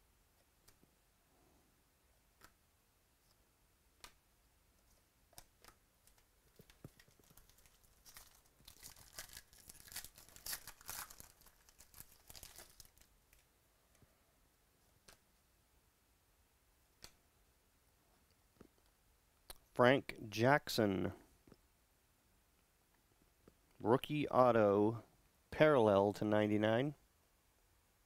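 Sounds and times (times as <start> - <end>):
wrapper tearing and crinkling: 6.9 - 13.4.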